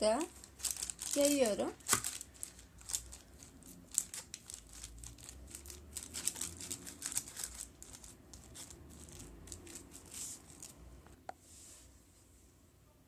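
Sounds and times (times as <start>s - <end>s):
parchment paper crinkling: 0.0s - 10.9s.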